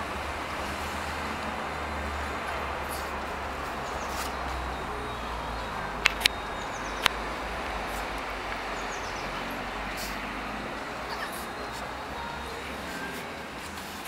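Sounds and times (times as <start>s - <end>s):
sharp clicks: 6.0s - 8.7s.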